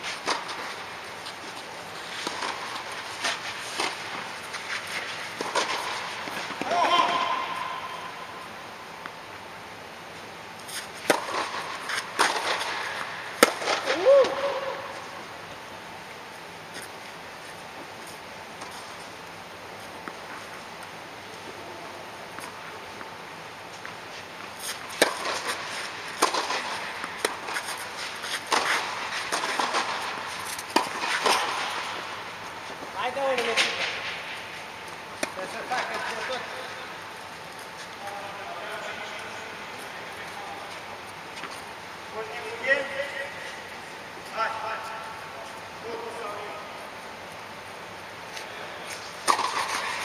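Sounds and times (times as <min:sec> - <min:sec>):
tennis ball struck with rackets: 0:11.1 - 0:11.6, 0:13.4 - 0:14.4, 0:26.2 - 0:27.8, 0:49.2 - 0:50.0
tennis ball struck by racket: 0:11.1 - 0:12.7, 0:13.4 - 0:13.9, 0:26.2 - 0:31.8, 0:49.2 - 0:50.0.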